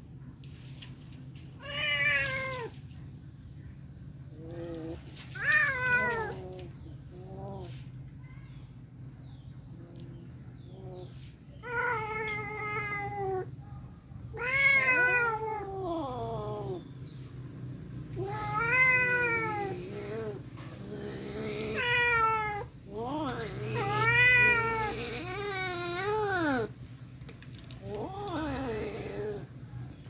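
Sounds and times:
cats yowling: 4.4 - 6.5, 11.6 - 13.6, 14.3 - 16.8, 18.2 - 26.7.

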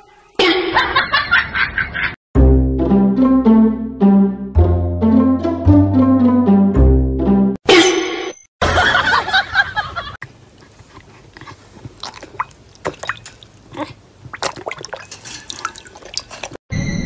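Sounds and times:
dog lapping water: 10.6 - 16.6
water splashing in plastic bowl: 12.0 - 13.7, 14.3 - 16.6.

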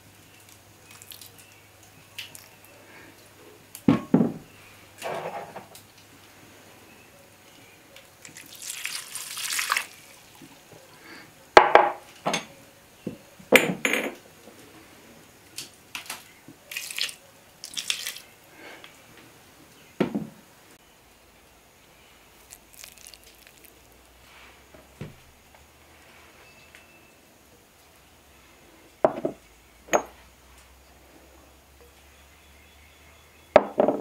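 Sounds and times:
liquid pouring into a bowl: 8.2 - 10.6, 16.7 - 18.3, 22.4 - 24.0.

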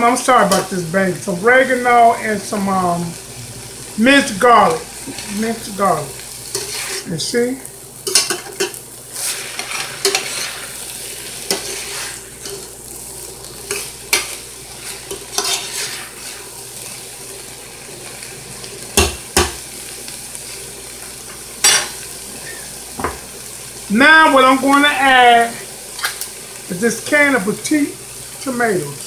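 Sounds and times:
meat sizzling: 0.0 - 29.0
metal spoon scraping pot: 15.1 - 16.1.

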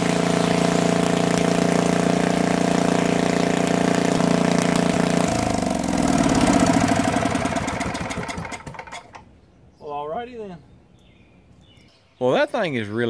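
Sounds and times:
unmuffled generator engine running: 0.0 - 9.2.

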